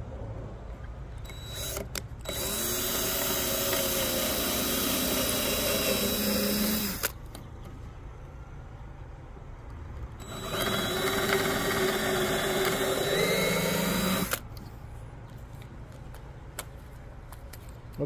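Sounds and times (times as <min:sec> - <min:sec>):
cordless drill boring into wood: 0:01.3 - 0:07.2, 0:10.2 - 0:14.4.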